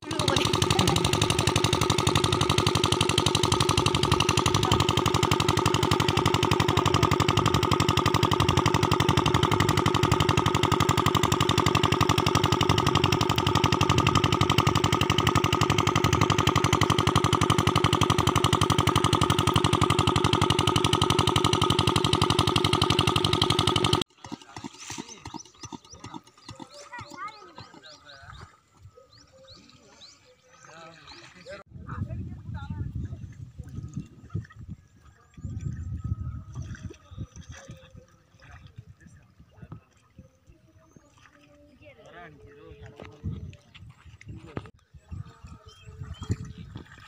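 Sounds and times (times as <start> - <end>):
water pump engine knocking: 0.0 - 29.8, 35.4 - 38.8, 45.3 - 47.0.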